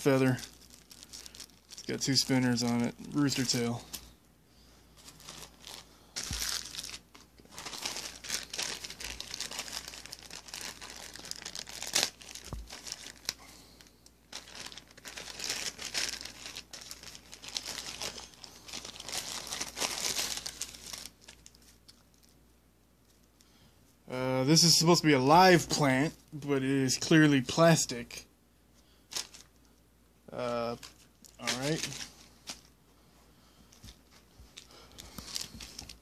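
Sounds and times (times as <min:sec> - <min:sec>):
plastic packaging crinkling: 0:00.0 - 0:04.0, 0:05.0 - 0:22.4, 0:29.1 - 0:29.7, 0:30.7 - 0:32.7, 0:33.7 - 0:36.0.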